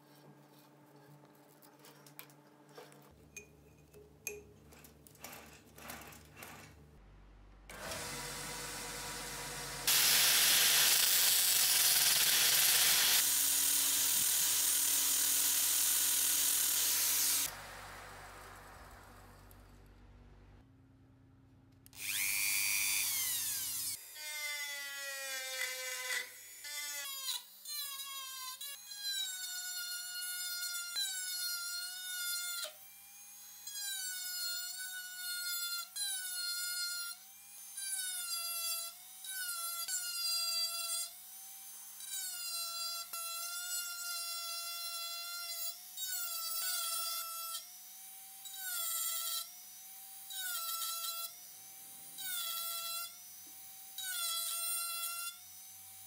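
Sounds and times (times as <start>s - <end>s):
electric drill motor whining: 7.7s - 17.7s, 22.0s - 24.0s.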